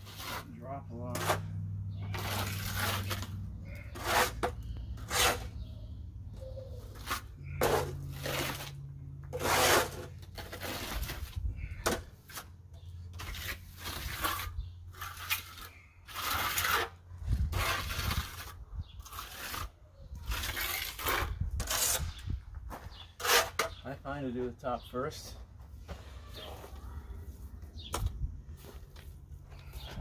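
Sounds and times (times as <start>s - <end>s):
trowel scraping mortar: 0.0s - 5.6s, 6.8s - 22.3s, 22.9s - 23.9s.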